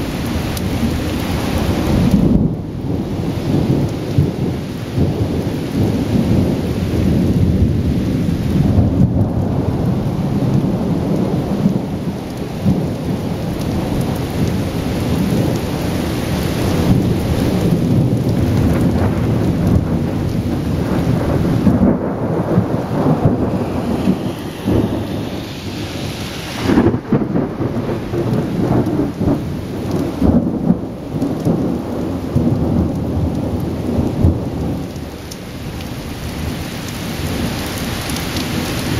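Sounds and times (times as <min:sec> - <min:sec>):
rolling thunder: 0:00.0 - 0:35.2
steady rain: 0:00.0 - 0:38.9
thunder cracks: 0:16.7 - 0:34.9.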